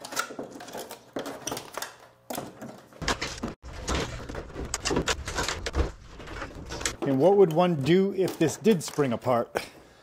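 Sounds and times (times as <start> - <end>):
wires scraping and rustling: 2.6 - 9.4.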